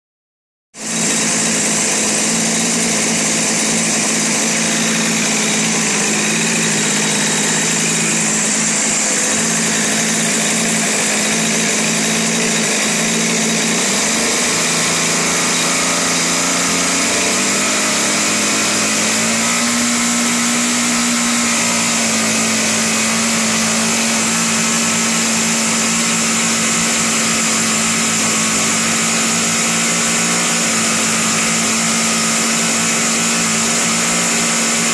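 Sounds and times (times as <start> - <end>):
model airplane engine running: 0.8 - 34.9.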